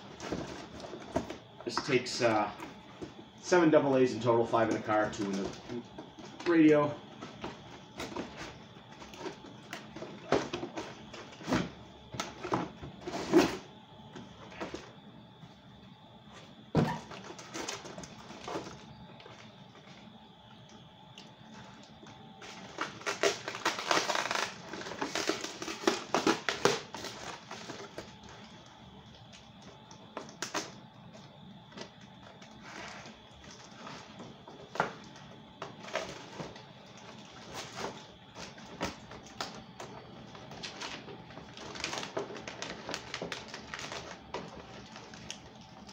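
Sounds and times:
packaging crinkling and tearing: 0:22.4 - 0:28.1, 0:40.4 - 0:45.9.

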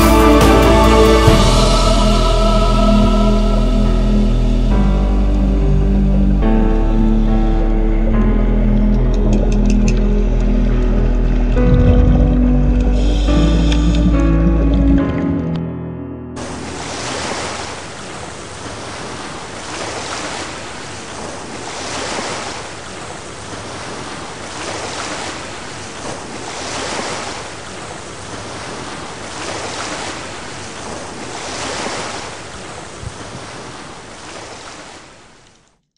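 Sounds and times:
sea waves washing: 0:00.0 - 0:15.7, 0:16.4 - 0:35.7.

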